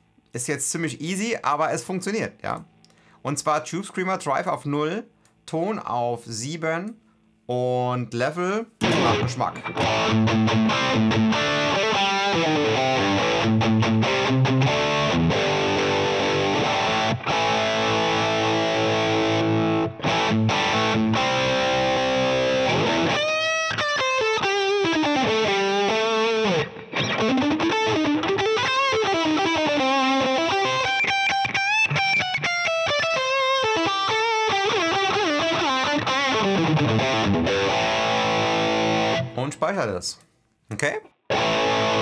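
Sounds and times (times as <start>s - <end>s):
distorted electric guitar solo: 8.8s - 39.4s, 41.3s - 42.0s.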